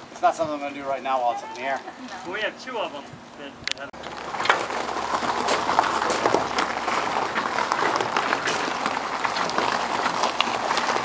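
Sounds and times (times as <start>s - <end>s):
footsteps on gravel: 4.0s - 11.0s.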